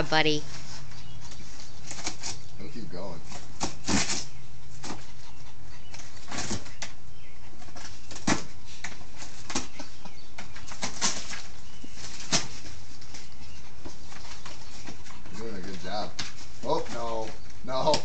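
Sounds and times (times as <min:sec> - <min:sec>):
dog claws scratching cardboard box: 0:03.3 - 0:05.1, 0:05.9 - 0:06.9.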